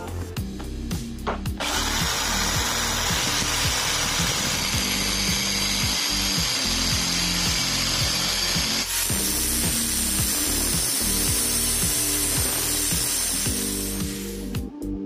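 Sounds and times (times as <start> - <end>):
angle grinder grinding steel: 1.6 - 14.4.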